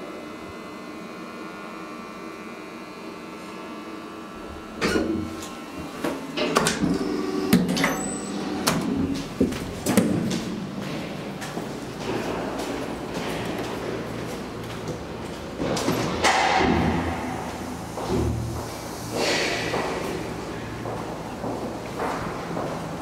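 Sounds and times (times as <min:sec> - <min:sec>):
elevator humming: 0:00.0 - 0:23.0
elevator clunk: 0:06.3 - 0:10.5, 0:15.6 - 0:18.6.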